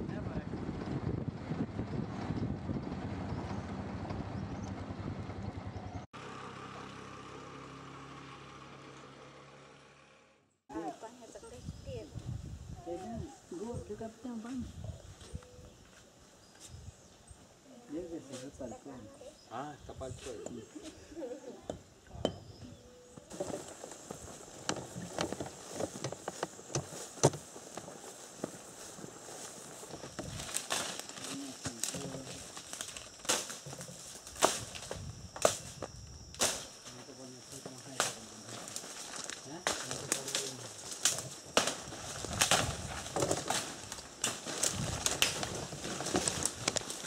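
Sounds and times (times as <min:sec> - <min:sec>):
leaves rustling: 0:10.7 - 0:21.5, 0:22.7 - 0:47.0
footsteps through tall grass: 0:23.3 - 0:35.9, 0:36.6 - 0:47.0
twigs cracking underfoot: 0:23.3 - 0:36.9, 0:38.0 - 0:47.0.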